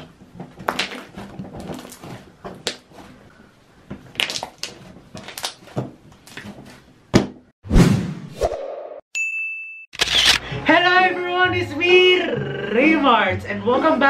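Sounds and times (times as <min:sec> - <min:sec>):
slime squishing and popping: 0:04.1 - 0:05.7.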